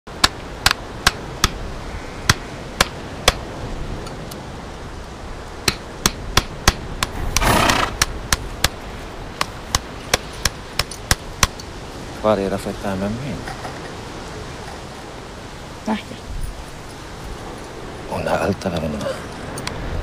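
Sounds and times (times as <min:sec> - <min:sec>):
hammer tapping on hoof: 0:05.6 - 0:08.8.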